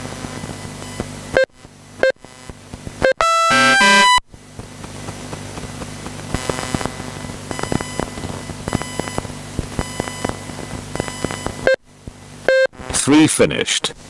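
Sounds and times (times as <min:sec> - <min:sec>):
steady low hum: 0:00.0 - 0:14.0
short electronic beeps: 0:03.0 - 0:04.2, 0:07.5 - 0:09.2, 0:09.8 - 0:11.8, 0:12.5 - 0:12.8.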